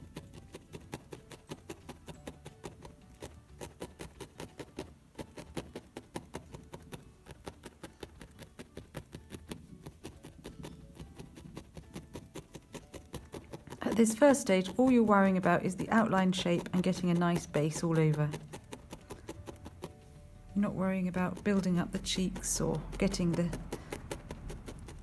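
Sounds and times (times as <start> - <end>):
felting needle soft clicks: 0.0 - 20.0.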